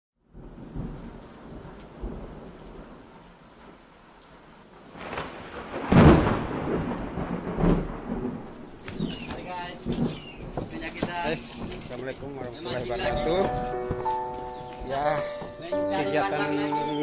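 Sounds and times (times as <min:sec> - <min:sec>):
wind buffeting microphone: 0:06.2 - 0:14.1.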